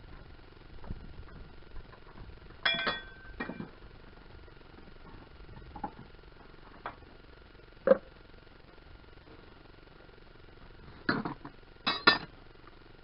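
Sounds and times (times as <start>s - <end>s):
metal tools clinking: 2.6s - 3.6s.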